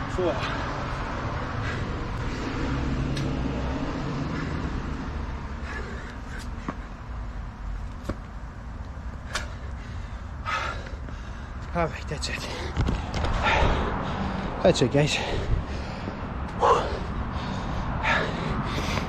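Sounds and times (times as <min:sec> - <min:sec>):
hands and sneakers slapping pavement: 0:05.6 - 0:09.9, 0:10.5 - 0:13.8, 0:18.1 - 0:19.0.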